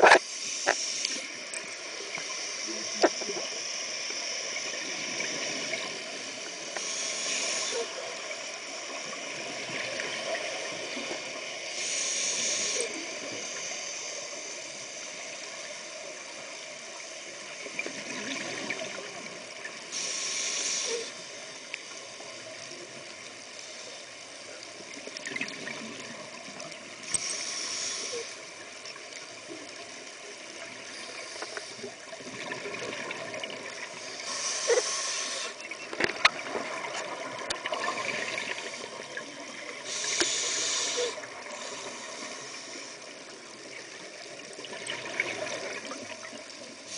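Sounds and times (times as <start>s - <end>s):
hissing regulator breaths: 0.0s - 8.8s, 11.1s - 15.2s, 19.8s - 22.0s, 27.0s - 28.6s, 30.8s - 32.1s, 33.7s - 35.8s, 39.7s - 43.4s
underwater bubbling and gurgling: 0.0s - 46.9s.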